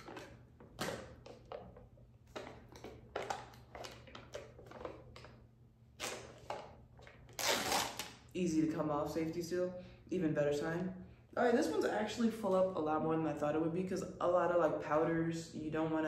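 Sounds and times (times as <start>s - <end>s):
plastic tub lid crinkling: 0.0s - 5.4s.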